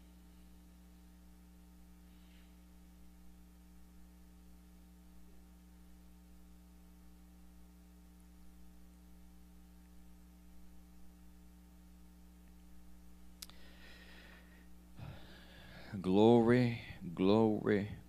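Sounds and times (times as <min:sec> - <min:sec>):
electrical mains hum: 0:00.0 - 0:18.0.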